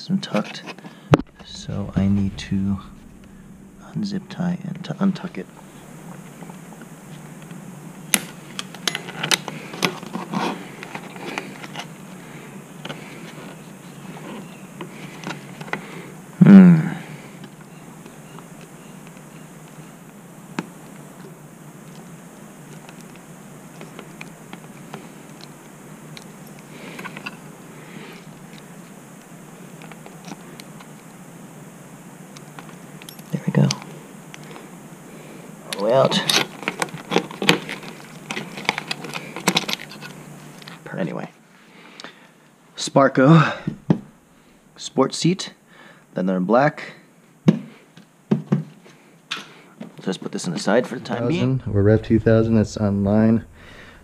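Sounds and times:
steady low hum: 0.9 - 41.7, 51.1 - 54.0
rustling handling noise: 36.3 - 40.8.

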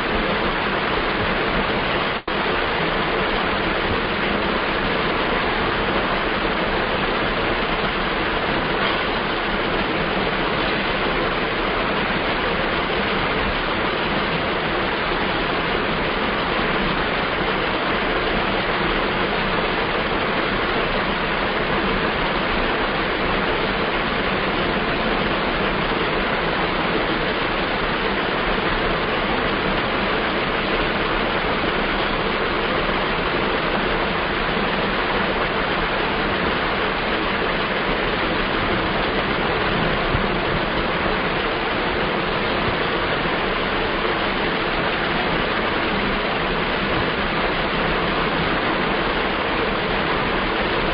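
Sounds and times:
steady background hiss: 0.0 - 50.9.

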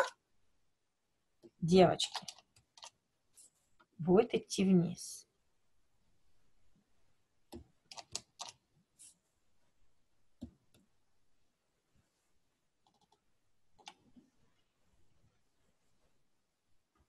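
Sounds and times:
mouse and keyboard clicks: 2.0 - 3.0, 7.5 - 8.6.

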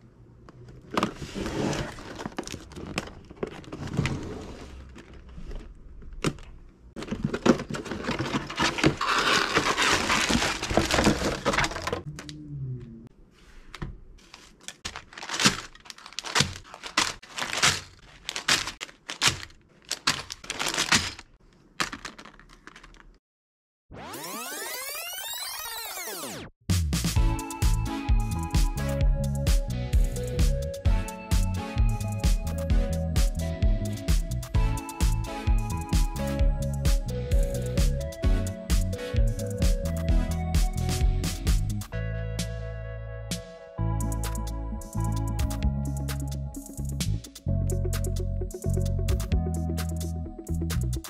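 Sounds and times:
plastic bags crinkling: 1.9 - 4.0, 7.0 - 12.1, 14.2 - 23.2.

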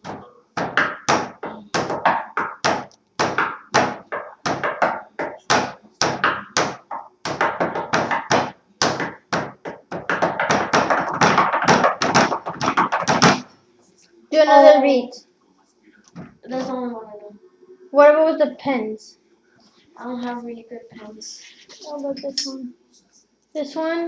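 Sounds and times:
hand drumming on wooden table: 0.0 - 13.5.

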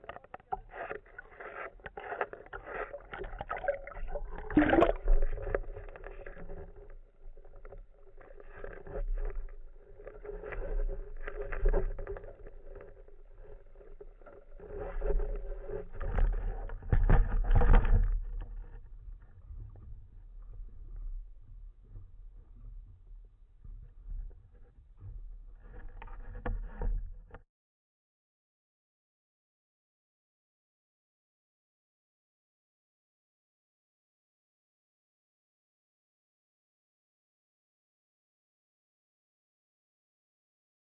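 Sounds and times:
water rushing and bubbling: 0.2 - 16.4.

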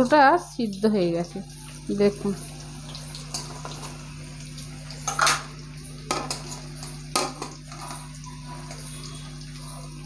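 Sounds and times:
metal spatula clanking on a pan: 5.0 - 5.5, 6.1 - 8.1.

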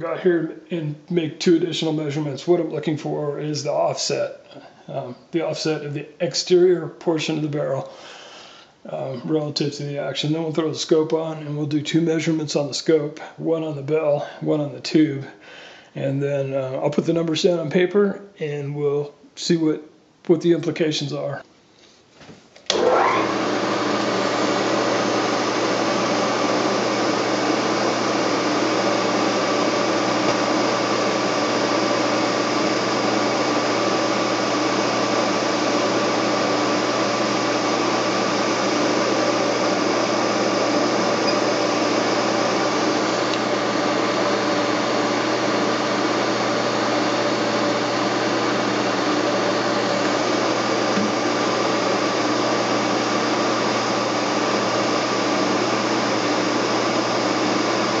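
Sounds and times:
milling machine motor whine: 22.7 - 58.0.

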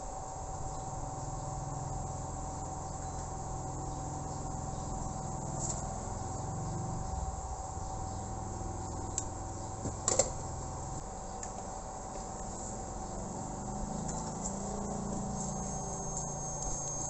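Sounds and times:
hot air gun blowing: 14.4 - 17.0.

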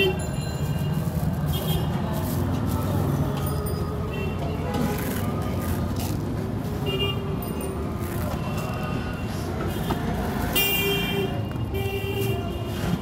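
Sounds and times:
vehicle horns tooting: 0.0 - 2.0
traffic rumbling: 0.0 - 13.0.

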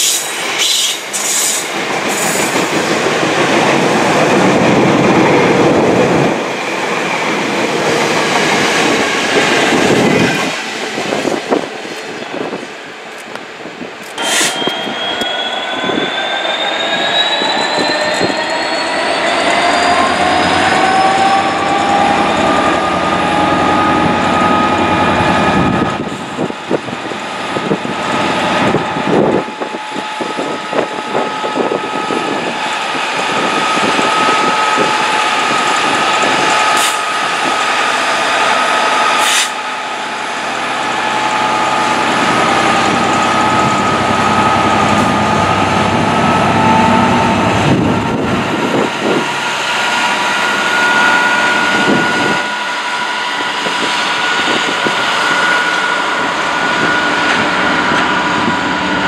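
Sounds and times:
diesel locomotive engine whining: 0.0 - 59.0.

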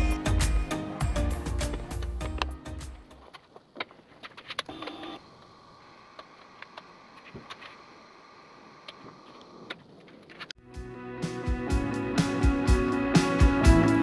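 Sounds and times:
faint steady hum: 3.2 - 10.5.

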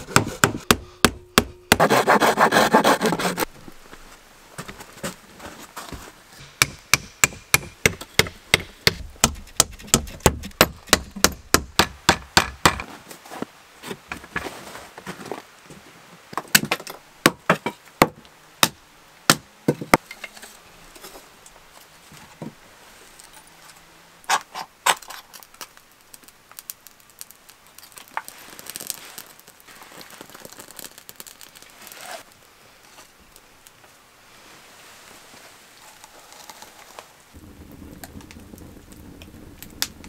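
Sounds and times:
sharp wooden knocks: 0.1 - 2.0, 6.6 - 12.9
kindling fire crackling: 19.9 - 40.0.

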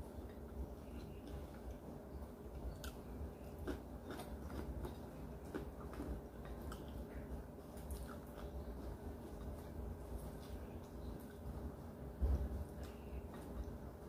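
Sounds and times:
low steady hum: 0.0 - 14.0
person chewing: 2.6 - 11.4.

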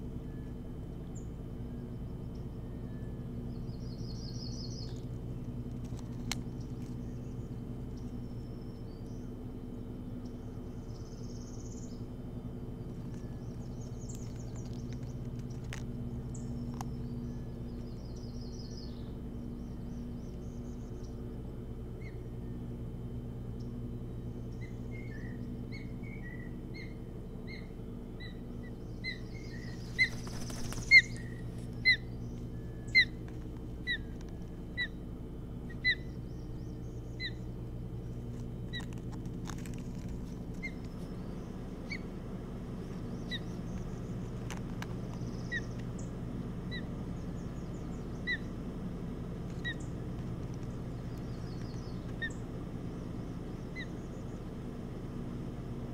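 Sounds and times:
low hum: 0.0 - 55.9
osprey chirping: 1.1 - 9.4, 12.8 - 22.7, 23.5 - 35.0, 35.6 - 54.8
rustle of wings: 4.5 - 8.3, 12.8 - 18.0, 28.4 - 34.8, 38.0 - 55.8.

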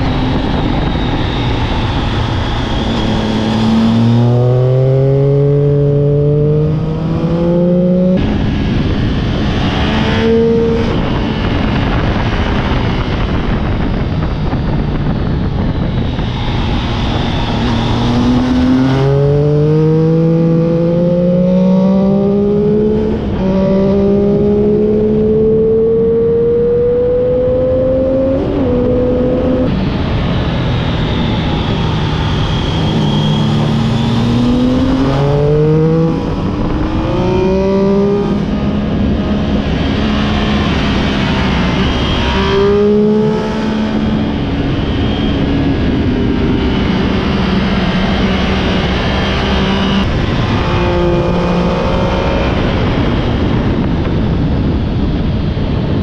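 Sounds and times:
motorcycle engine revving: 0.0 - 55.2
heavy wind rush: 0.0 - 56.0.

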